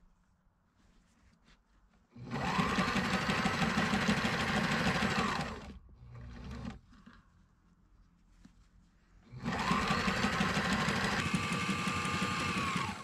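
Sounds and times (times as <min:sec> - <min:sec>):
sewing machine stitching canvas: 0:02.2 - 0:07.2, 0:09.3 - 0:13.0.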